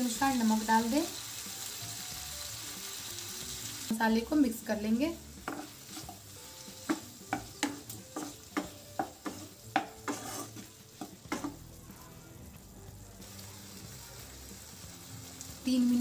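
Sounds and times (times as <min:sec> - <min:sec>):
frying sizzle: 0:00.0 - 0:16.0
spatula knocking and scraping pan: 0:05.4 - 0:11.6.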